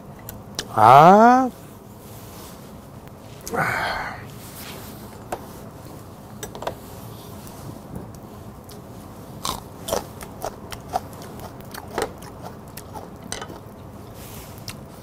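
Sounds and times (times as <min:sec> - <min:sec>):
crunchy chewing of chili pepper: 0:07.3 - 0:15.0.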